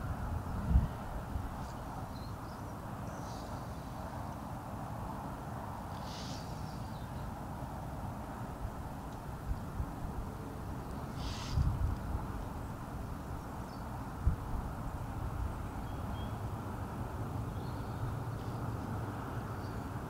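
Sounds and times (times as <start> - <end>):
wind buffeting microphone: 0.0 - 2.6, 8.5 - 18.2
bird calls and chirps: 1.6 - 3.7, 5.9 - 7.3, 10.9 - 11.7, 15.8 - 16.5, 17.5 - 18.7.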